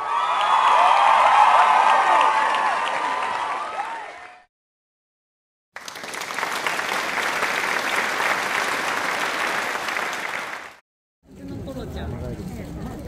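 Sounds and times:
audience applauding: 0.0 - 4.5, 5.8 - 10.8.

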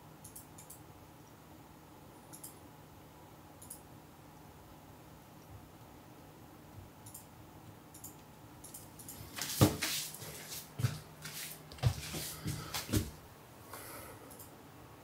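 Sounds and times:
footsteps on wooden floor: 9.4 - 13.2.

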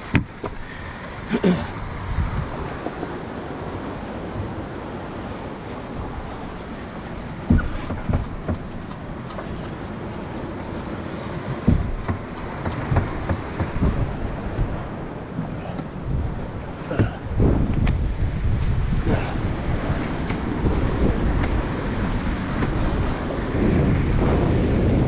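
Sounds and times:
surf washing against rocks: 0.0 - 25.0
wind: 0.0 - 25.0
dull thumps: 7.2 - 9.7, 11.5 - 18.0.

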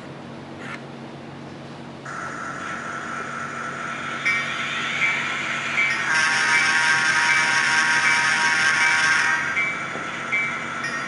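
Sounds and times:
steady engine drone: 0.0 - 11.0
louder fuller engine sound: 2.0 - 9.8
locomotive bell dinging: 4.2 - 11.0.

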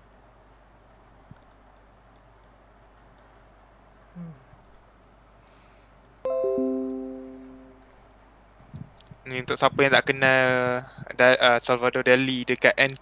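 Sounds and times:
faint steady hiss: 0.0 - 13.0
click: 1.3 - 3.3, 4.6 - 4.9.

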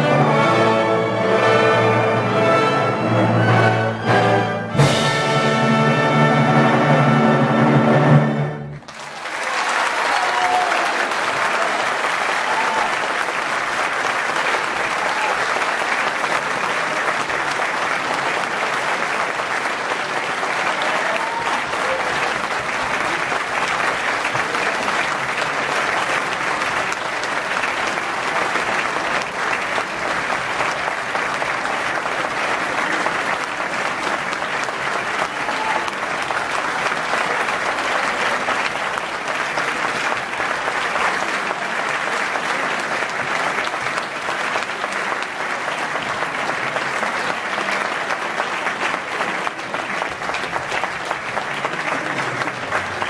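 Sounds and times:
audience applauding: 8.6 - 53.0.

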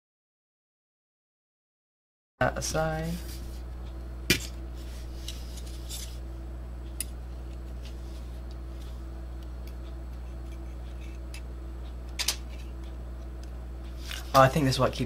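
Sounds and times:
low electrical hum: 2.4 - 15.0.

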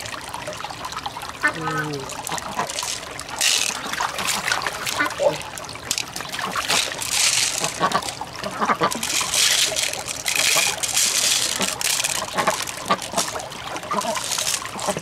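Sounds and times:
water trickling: 0.0 - 15.0
wet beads clicking in a shell: 8.9 - 15.0.

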